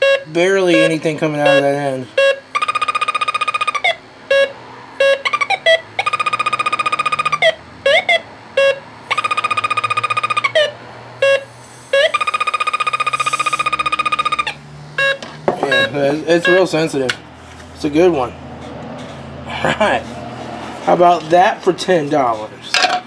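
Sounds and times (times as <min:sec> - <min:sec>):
single electronic chirps: 0:00.0 - 0:16.7
fast high-pitched alarm beeping: 0:00.0 - 0:16.9.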